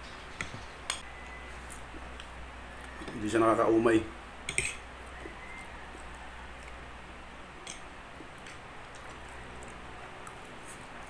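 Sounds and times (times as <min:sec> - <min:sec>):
low steady hum: 0:00.0 - 0:11.0
forks clicking on plates: 0:04.5 - 0:04.8.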